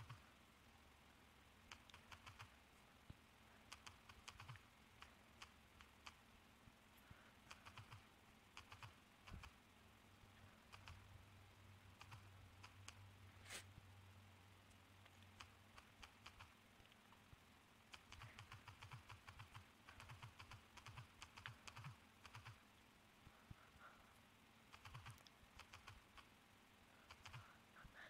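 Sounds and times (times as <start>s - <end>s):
phone keyboard typing clicks: 3.7s - 6.2s, 7.5s - 8.0s, 17.9s - 22.6s, 24.7s - 26.0s, 27.1s - 27.5s.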